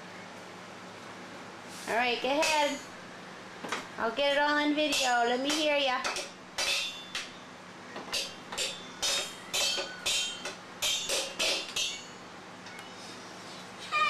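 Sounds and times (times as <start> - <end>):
child banging on metal pots: 4.8 - 7.3, 8.1 - 12.2.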